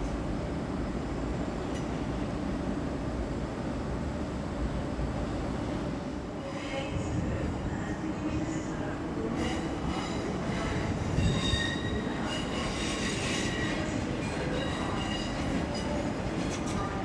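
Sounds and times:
train rumble: 0:00.0 - 0:17.0
train wheels squealing: 0:09.4 - 0:16.1.

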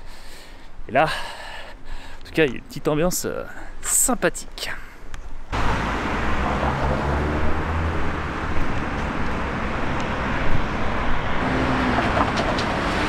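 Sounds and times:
car engines and tyres rumbling: 0:05.2 - 0:13.0.

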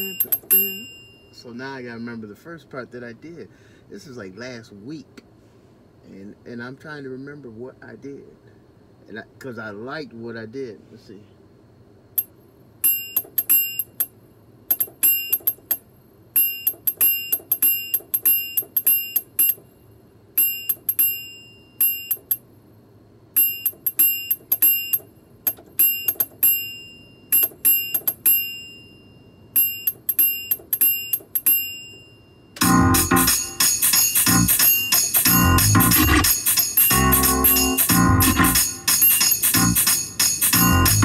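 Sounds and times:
loud full music with deep bass: 0:32.6 - 0:41.0
synthesizer notes: 0:32.6 - 0:41.0.

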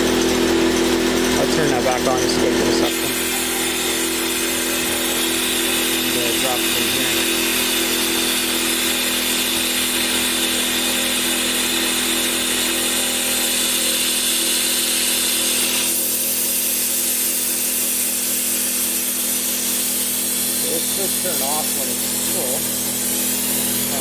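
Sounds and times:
steady hum: 0:01.4 - 0:10.6
vacuum brake bleeder hissing: 0:02.1 - 0:24.0.

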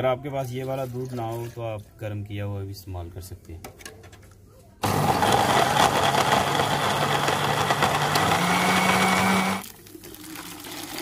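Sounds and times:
electric blender running: 0:04.8 - 0:09.6.

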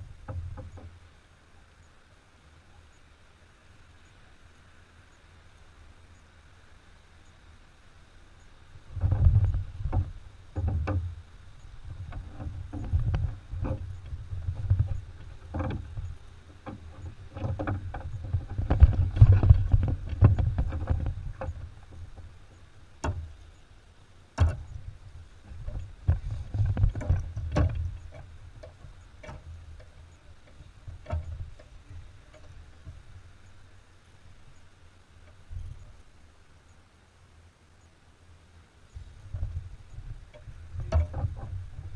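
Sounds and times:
water sounds: 0:00.0 - 0:41.9
kayak paddle strokes: 0:08.5 - 0:36.8, 0:38.8 - 0:41.9
low rumbling thumps: 0:08.8 - 0:22.4, 0:24.4 - 0:29.9, 0:39.0 - 0:41.9
sharp knocks on hull: 0:23.0 - 0:23.3, 0:24.4 - 0:24.7, 0:25.5 - 0:29.9, 0:40.3 - 0:41.6.

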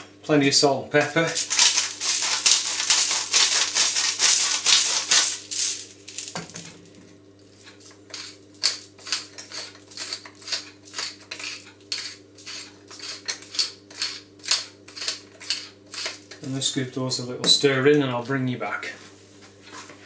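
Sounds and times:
salt and pepper grinders grinding: 0:01.2 - 0:16.6.

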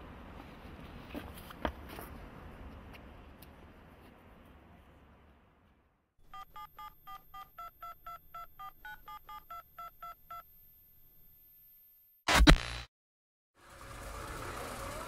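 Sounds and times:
telephone keypad tones: 0:06.3 - 0:10.4.

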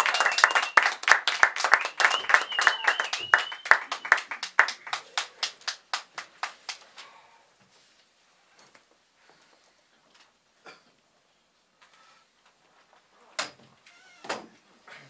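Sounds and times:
audience clapping: 0:00.0 - 0:07.0.

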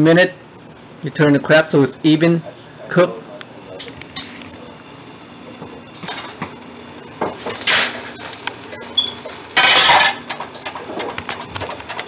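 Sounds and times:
metal cookware clanking: 0:07.3 - 0:12.0.

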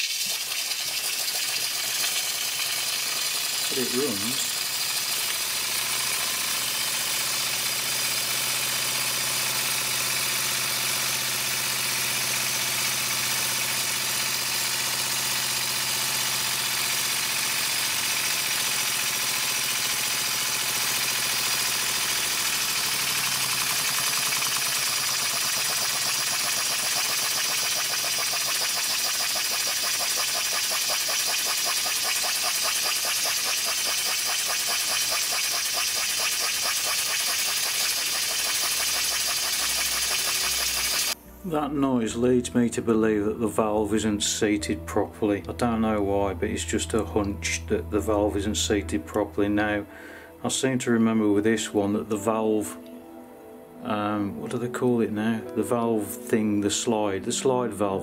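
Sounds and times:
steam hissing: 0:00.0 - 0:41.2
steam engine exhaust beats: 0:01.1 - 0:41.6.

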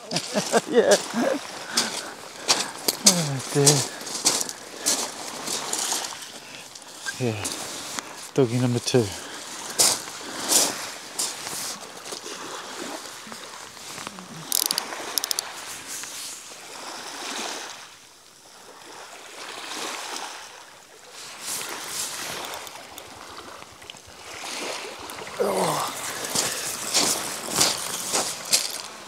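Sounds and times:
small waves washing over shingle: 0:00.0 - 0:29.0
sharp clicks: 0:14.5 - 0:15.4.

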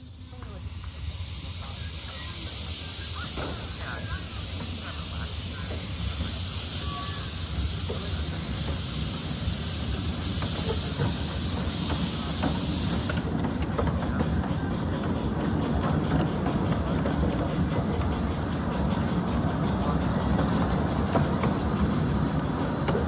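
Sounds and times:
steam hissing: 0:00.0 - 0:23.0
train wheels rumbling on rails: 0:00.0 - 0:23.0.

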